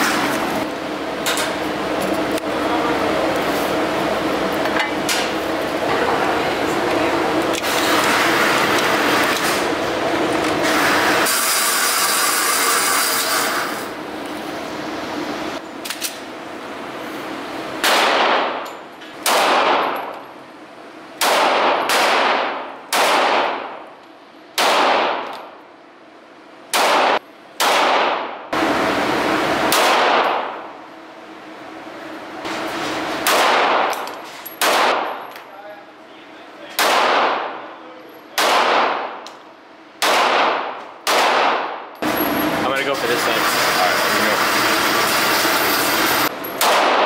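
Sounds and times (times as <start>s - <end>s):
pistol shots echoing indoors: 17.8s - 20.1s, 21.2s - 23.8s, 24.6s - 25.5s, 26.7s - 28.4s, 29.7s - 30.7s, 33.2s - 35.2s, 36.7s - 37.7s, 38.3s - 39.3s, 40.0s - 41.9s, 46.6s - 47.0s.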